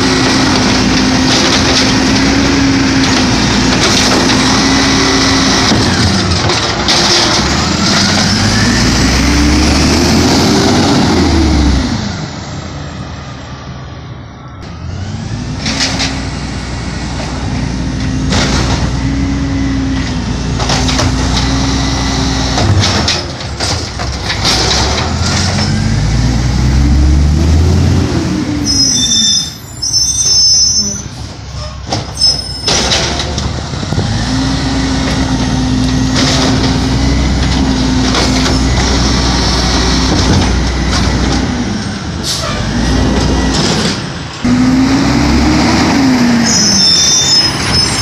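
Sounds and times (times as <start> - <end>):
garbage truck engine and hydraulics whine: 0.0 - 48.0
high-pitched squealing: 28.6 - 33.3, 45.9 - 48.0.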